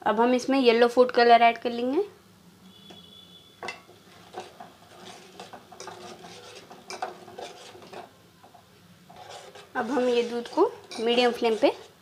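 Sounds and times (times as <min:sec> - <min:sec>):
spoon scraping metal pot: 0:02.8 - 0:12.0.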